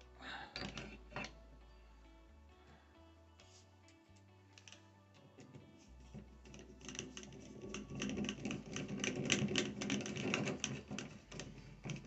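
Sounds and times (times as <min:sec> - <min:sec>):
rapid irregular clicking and rattling: 0:06.1 - 0:12.0.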